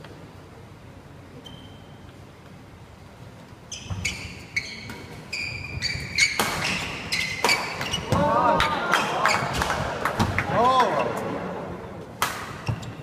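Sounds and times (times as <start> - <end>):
background noise: 0.0 - 13.0
shoes squeaking on wooden floor: 3.7 - 8.1
rackets hitting shuttlecock: 6.2 - 10.5, 12.1 - 13.0.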